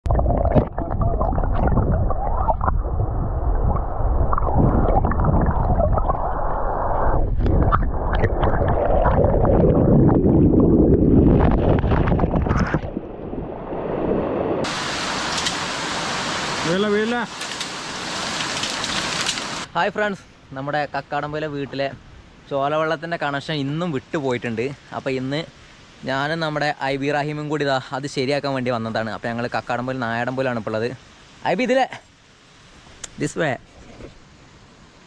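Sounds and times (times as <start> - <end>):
muffled underwater stream gurgle: 0.0 - 14.8
running water hiss: 14.6 - 35.0.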